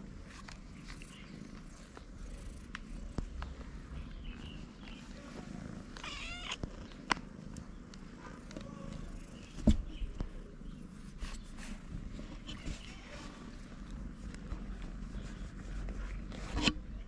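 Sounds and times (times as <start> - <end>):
cats purring: 0.0 - 17.0
cat meowing: 6.0 - 6.6.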